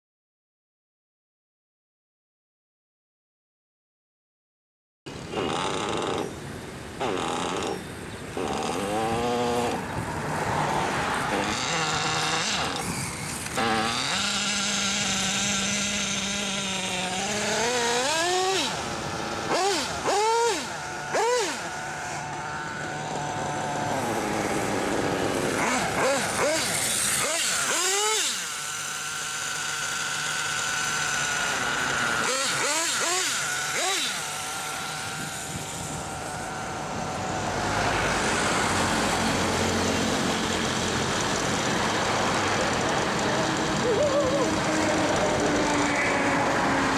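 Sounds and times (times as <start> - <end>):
model motorbike motor whining: 5.1 - 46.9
car driving past: 37.3 - 40.6.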